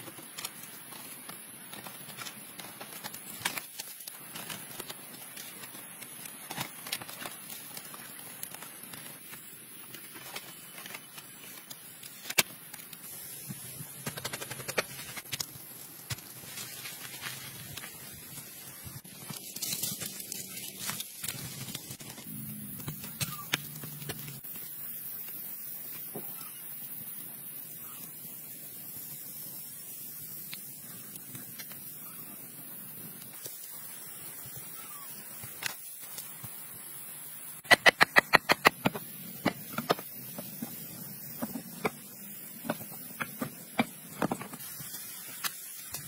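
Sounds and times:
background hiss: 0.0 - 46.0
sharp clicks: 37.6 - 39.9.

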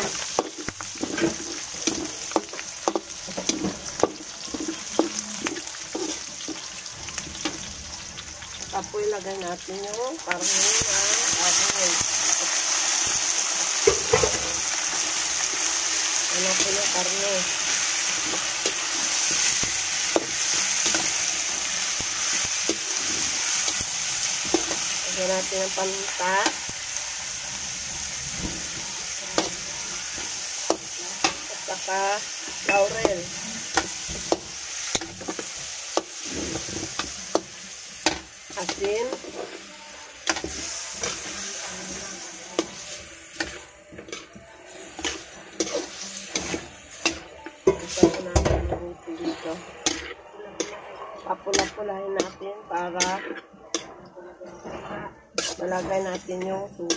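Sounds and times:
spatula scraping a pan: 0.0 - 6.8, 32.3 - 48.4, 51.5 - 56.9
pork sizzling in hot oil: 0.0 - 50.8, 51.4 - 53.8.

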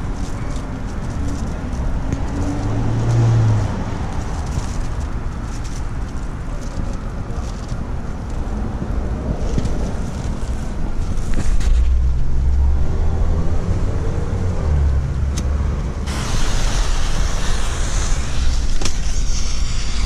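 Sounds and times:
fuse hissing and spitting: 16.1 - 20.0.

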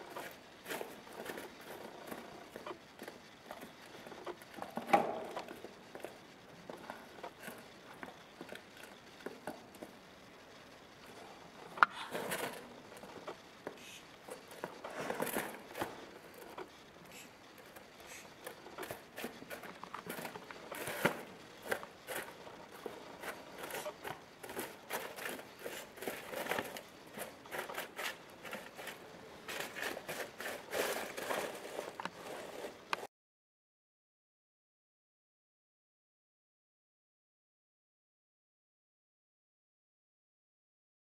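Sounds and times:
straw and foil rustling: 11.0 - 33.1.

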